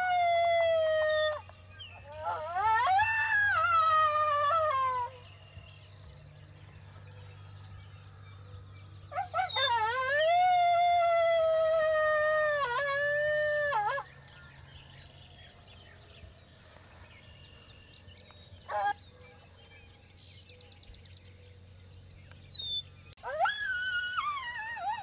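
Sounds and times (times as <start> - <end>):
coyote yipping: 0.0 - 5.2, 18.7 - 19.0, 22.6 - 25.0
coyote howling: 0.0 - 5.4, 9.1 - 14.3, 23.2 - 25.0
small birds chirping: 0.0 - 11.2, 12.0 - 23.2.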